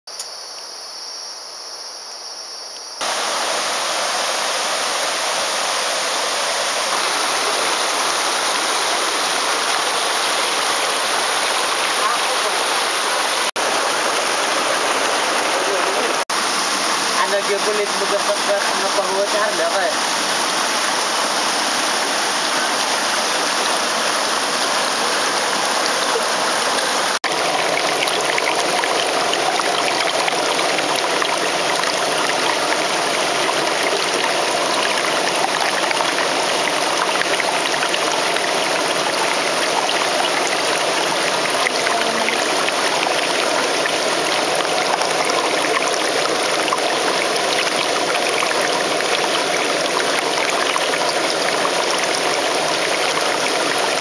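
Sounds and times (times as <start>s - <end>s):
stream rushing over rocks: 3.0s - 54.0s.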